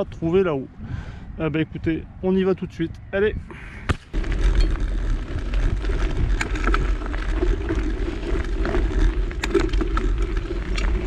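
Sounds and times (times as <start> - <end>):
wind on microphone: 0.0 - 11.0
bike tyres rolling on dirt: 3.6 - 11.0
bike rattles and clicks: 3.8 - 11.0.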